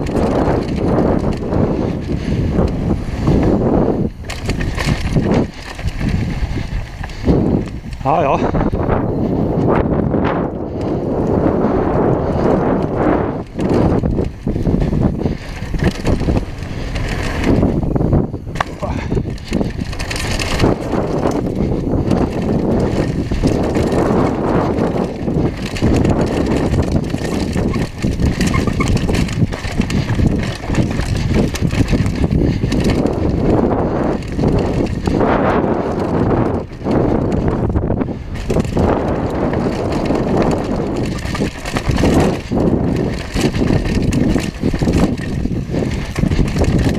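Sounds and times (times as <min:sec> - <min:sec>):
bike rattling over bumps: 0:00.0 - 0:46.9
bike tyres crunching on gravel: 0:00.0 - 0:46.9
wind buffeting microphone: 0:00.0 - 0:46.9.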